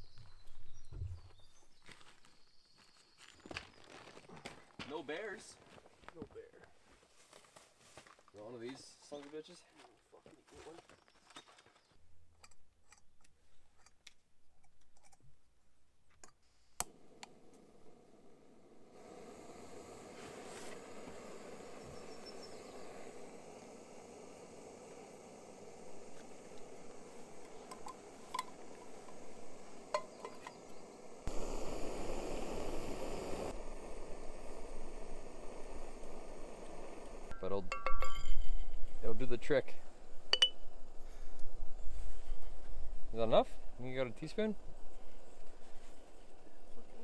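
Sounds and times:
metallic clicks of camping stove: 0:12.4 - 0:15.2, 0:16.2 - 0:17.7, 0:23.6 - 0:31.4, 0:40.2 - 0:41.6
gas stove burner hissing: 0:16.5 - 0:37.6
metal lid clinking on pot: 0:37.7 - 0:38.6.

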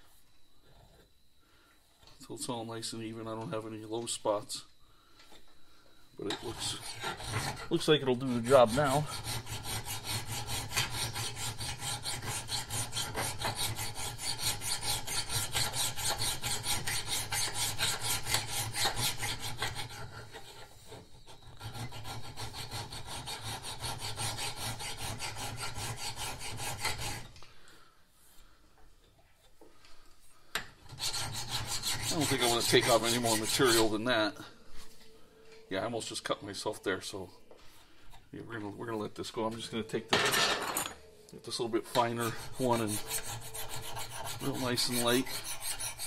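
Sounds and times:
file rasping on steel: 0:06.2 - 0:27.3, 0:30.8 - 0:34.0, 0:41.5 - 0:46.0.

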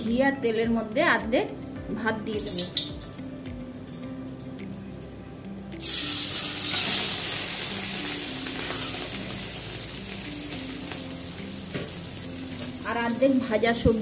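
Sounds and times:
hot oil sizzling: 0:02.4 - 0:03.2, 0:05.8 - 0:13.6.

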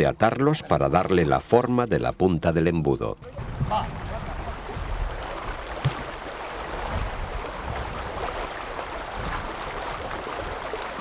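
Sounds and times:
river water running over stones: 0:03.3 - 0:11.0.

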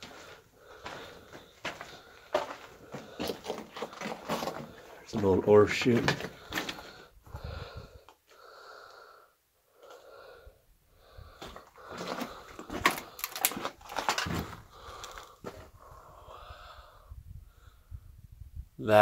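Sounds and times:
person breathing heavily: 0:00.0 - 0:05.2, 0:06.0 - 0:18.2
footsteps on rock and timber: 0:00.0 - 0:07.4, 0:11.3 - 0:15.8.

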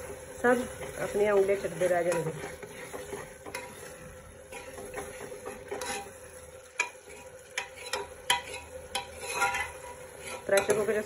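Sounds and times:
soft sizzle: 0:00.0 - 0:11.0
spoon scraping a pot: 0:00.8 - 0:11.0
spoon clinking on metal pot: 0:06.8 - 0:11.0.

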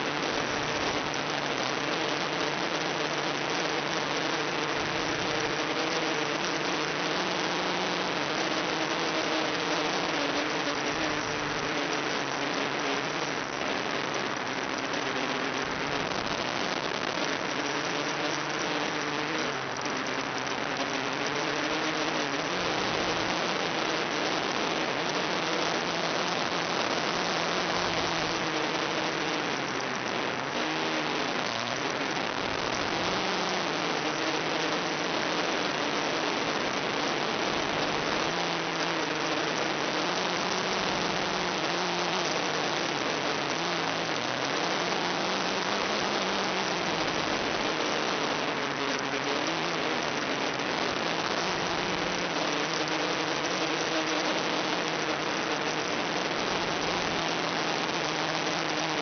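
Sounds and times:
video link static hiss: 0:00.0 - 0:59.0.

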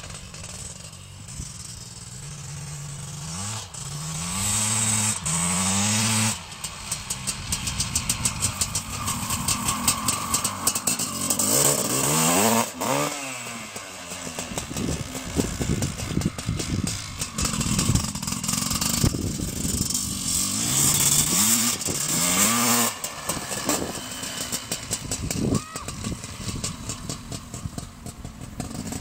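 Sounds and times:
motocross bike accelerating past: 0:00.0 - 0:29.0.

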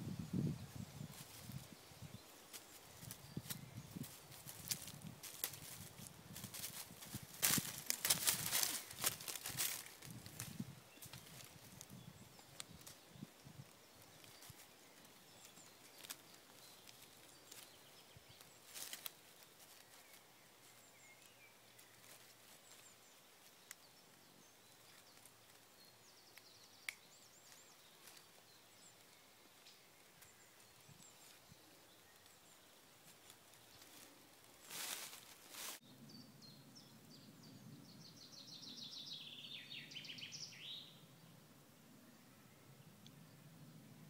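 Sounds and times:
soft clicks and rustles: 0:02.5 - 0:24.0
faint bird chirps: 0:08.4 - 0:41.4.

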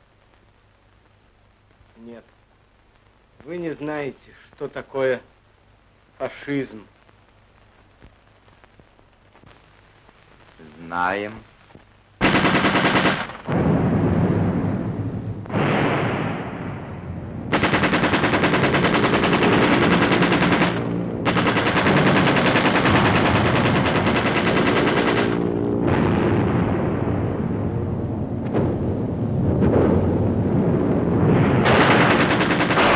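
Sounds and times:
machine-gun fire: 0:12.2 - 0:32.9.

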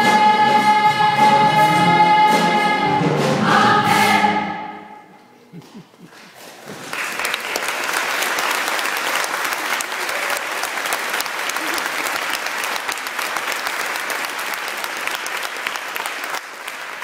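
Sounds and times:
audience applauding: 0:06.1 - 0:17.0.

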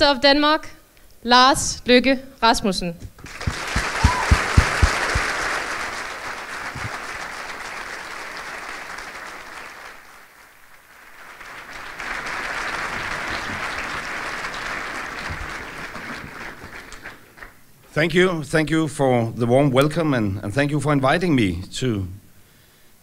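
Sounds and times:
audience applauding: 0:03.2 - 0:17.6.

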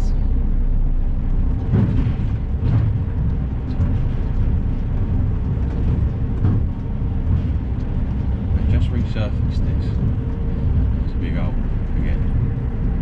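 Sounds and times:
truck diesel engine rumbling: 0:00.0 - 0:13.0.

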